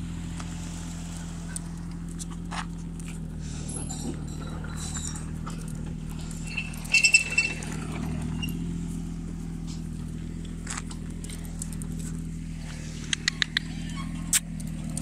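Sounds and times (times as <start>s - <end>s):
low hum: 0.0s - 15.0s
sharp metallic clinks: 3.5s - 9.9s.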